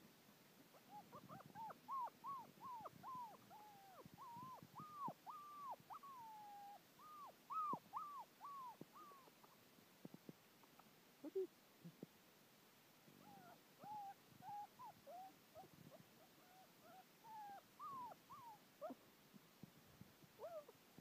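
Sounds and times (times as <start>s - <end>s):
puppy whimpering: 0.8s - 9.4s, 13.2s - 19.0s, 20.4s - 20.7s.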